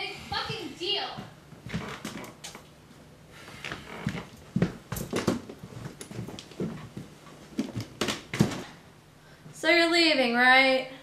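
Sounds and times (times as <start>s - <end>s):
footsteps on wooden floor: 0.3s - 8.7s.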